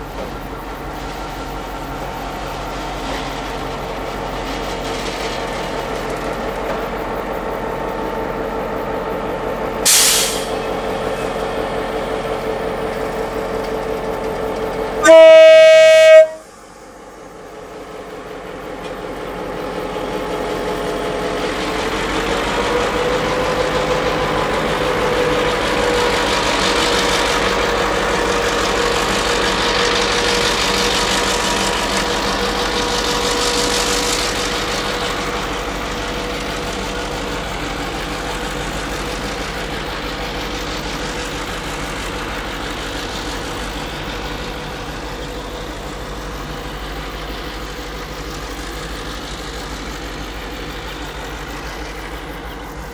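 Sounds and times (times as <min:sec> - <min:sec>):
diesel locomotive engine: 0:00.0 - 0:52.9
train wheels high tone: 0:09.8 - 0:17.2
locomotive horn blast: 0:15.0 - 0:16.6.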